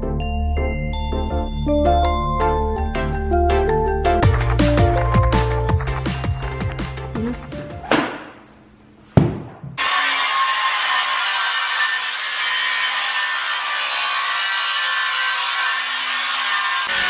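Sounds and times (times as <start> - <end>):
sharp knock: 7.8 - 8.4, 9.2 - 9.8
circular saw cutting wood: 9.8 - 17.0.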